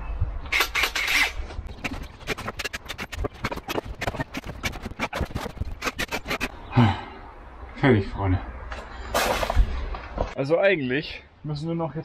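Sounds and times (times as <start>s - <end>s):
scraping rush: 0.8s - 6.6s
rapid clicks and knocks on wood: 1.7s - 6.5s.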